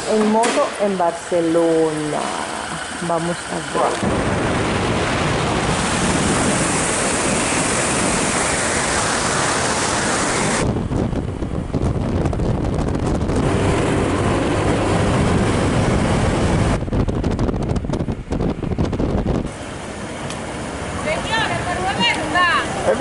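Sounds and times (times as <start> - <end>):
motorcycle and road rumble: 0.0 - 23.0
wind rushing over microphone: 4.0 - 19.6.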